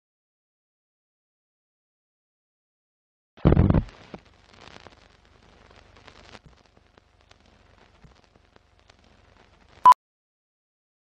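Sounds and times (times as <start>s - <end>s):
film hiss with crackles: 3.4s - 9.9s.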